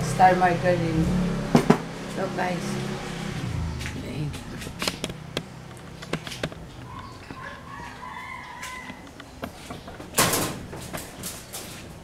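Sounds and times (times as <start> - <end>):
rooster crowing: 7.0 - 9.2.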